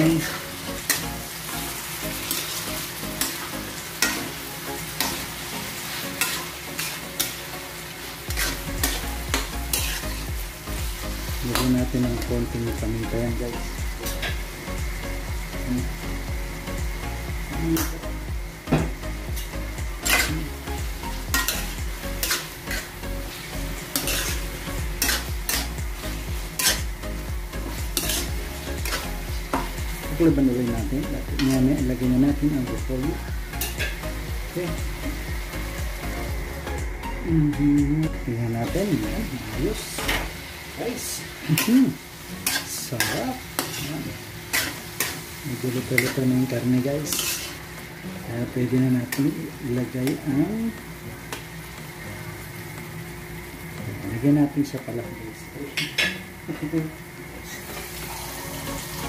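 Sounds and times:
meat sizzling in a wok: 0.0s - 59.0s
metal spatula scraping pan: 8.3s - 10.2s, 20.0s - 20.4s, 21.3s - 22.9s, 23.9s - 25.8s, 26.6s - 26.9s, 28.0s - 29.7s, 42.4s - 45.2s, 47.1s - 47.6s.

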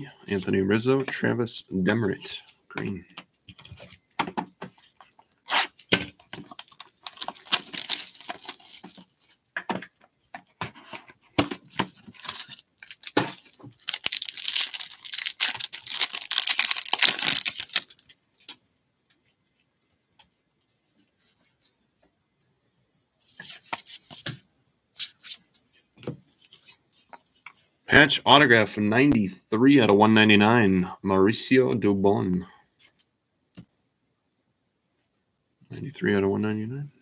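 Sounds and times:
foil wrapper tearing: 5.5s - 9.0s, 12.0s - 18.1s.

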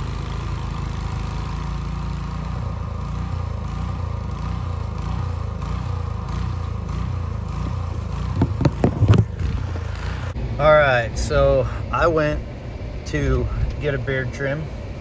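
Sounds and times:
snowblower engine idling: 0.0s - 15.0s
phone handling knocks and rubs: 7.6s - 9.7s.

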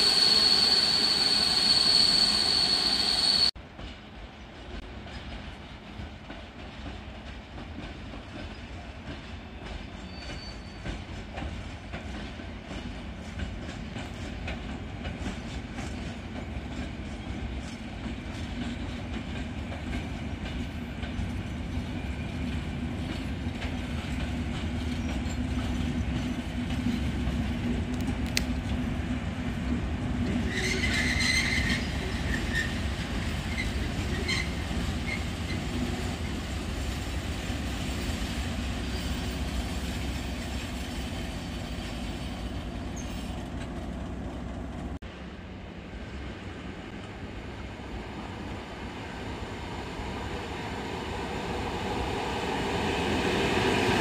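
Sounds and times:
train wheels squealing: 0.0s - 3.6s, 8.2s - 11.6s, 21.3s - 22.8s, 24.8s - 27.1s, 30.3s - 37.0s, 37.8s - 43.7s
diesel locomotive engine rumbling: 0.0s - 54.0s.

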